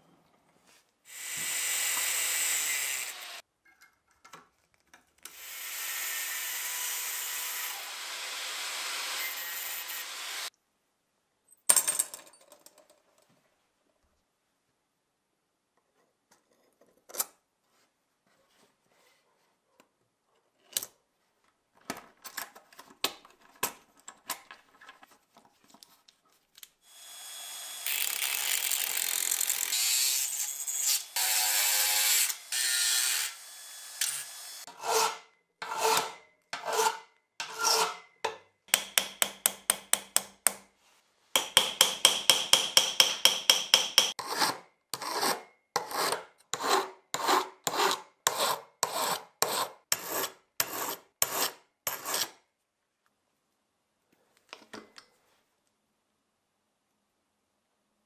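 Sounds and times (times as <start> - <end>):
hammer tapping steel pins: 38.7 - 40.6, 41.4 - 44.2.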